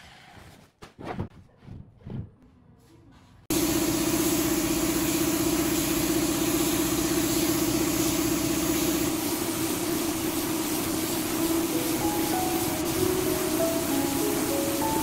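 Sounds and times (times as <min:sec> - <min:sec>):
air compressor humming: 0:03.5 - 0:15.0
spray gun hissing: 0:03.5 - 0:15.0.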